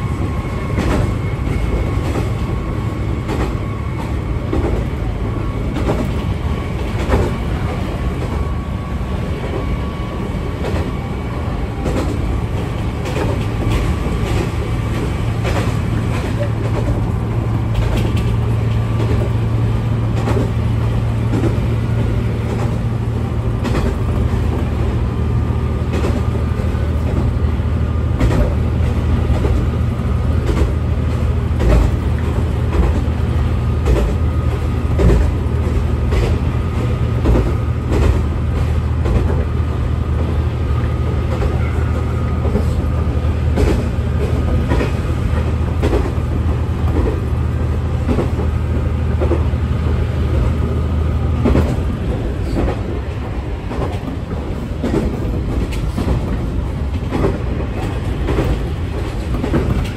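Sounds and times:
diesel railcar engine drone: 0.0 - 59.9.

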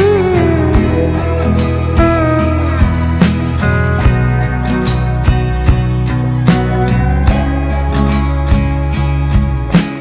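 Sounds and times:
plucked acoustic guitar music: 0.0 - 10.0.

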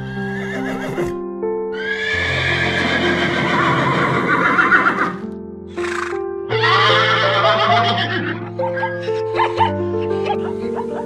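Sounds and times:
background music: 0.0 - 11.0
horse whinnying: 0.1 - 1.2, 1.8 - 9.1.

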